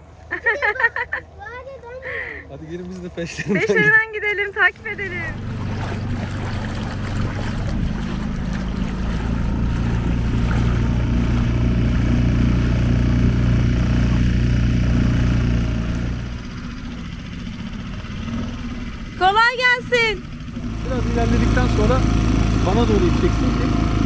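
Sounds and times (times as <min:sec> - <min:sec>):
outboard motor running: 0:02.2 - 0:24.0
water rushing along hull: 0:04.6 - 0:24.0.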